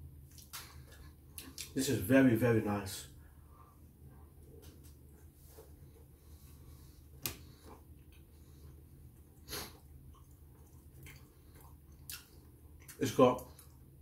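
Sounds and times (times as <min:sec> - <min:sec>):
person chewing crunchy cookie: 0:07.3 - 0:13.8.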